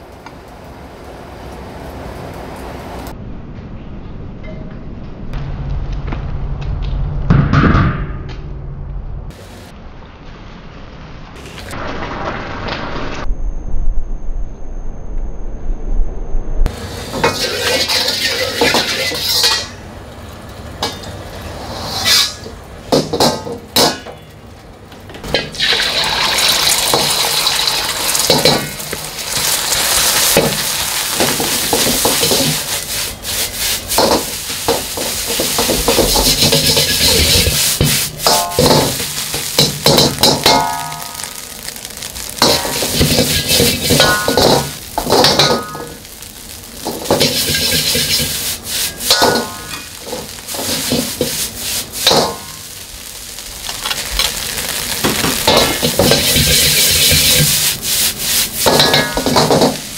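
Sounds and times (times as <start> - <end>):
oil sizzling in wok: 11.3 - 13.3, 16.6 - 59.9
metal ladle clanking and scraping wok: 16.8 - 19.9, 20.8 - 24.3, 25.2 - 52.7, 53.6 - 59.9.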